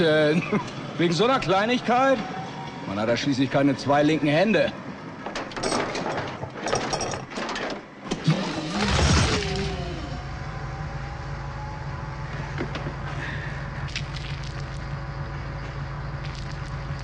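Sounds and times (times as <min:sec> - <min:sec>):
clicks and knocks of tools: 0:05.2 - 0:07.9
loud burst with falling whine: 0:08.4 - 0:17.0
steady low machine hum: 0:08.9 - 0:17.0.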